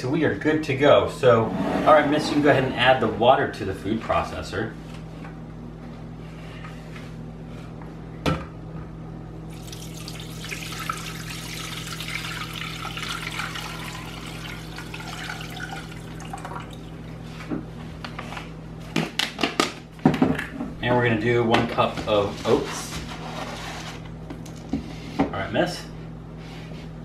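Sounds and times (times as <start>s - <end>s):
water pouring into plastic bowl: 9.5s - 17.0s.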